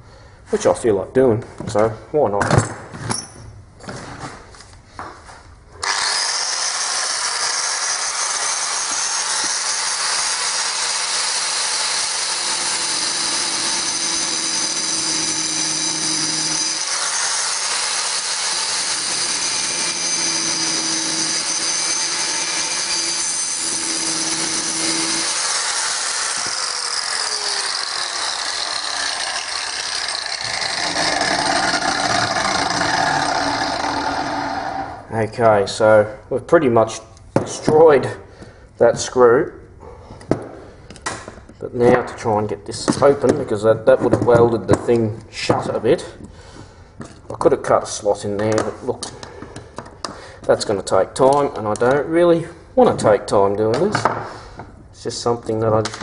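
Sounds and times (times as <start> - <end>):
angle grinder whining: 5.8 - 35.1.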